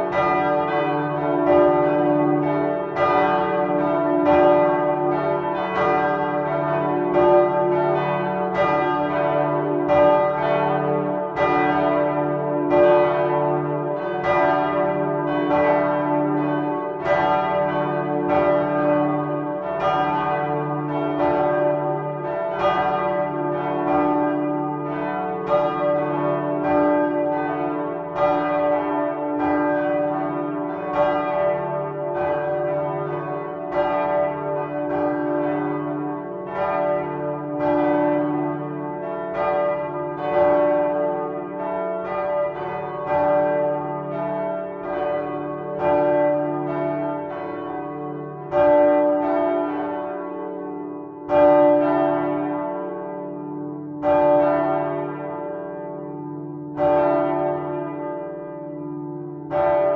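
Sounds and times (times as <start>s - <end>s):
church bells pealing: 0.0s - 59.9s.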